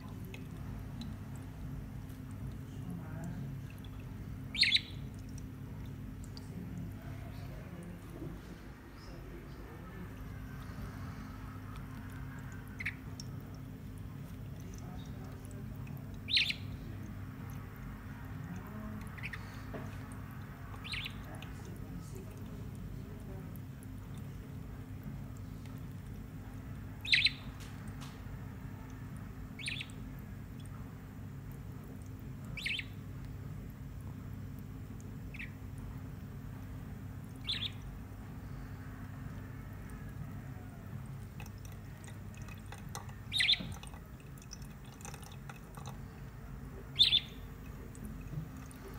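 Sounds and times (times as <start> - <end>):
low background hum: 0.0 - 48.9
budgerigar chirping: 4.5 - 5.0, 12.8 - 13.0, 16.3 - 16.8, 20.8 - 21.3, 27.0 - 27.5, 29.6 - 30.0, 32.6 - 33.0, 35.3 - 35.6, 37.4 - 37.9, 43.3 - 43.8, 47.0 - 47.5.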